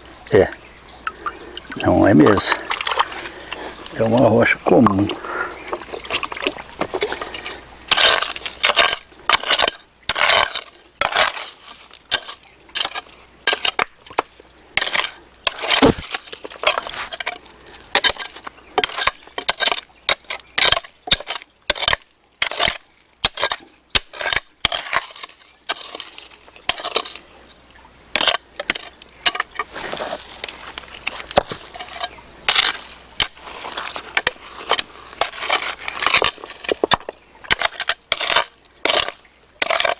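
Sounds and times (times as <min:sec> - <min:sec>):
blade clinking against stones: 0:07.9 - 0:13.9, 0:28.2 - 0:29.7, 0:30.3 - 0:39.9
hand hoe chopping soil: 0:07.9 - 0:27.2, 0:28.2 - 0:39.9.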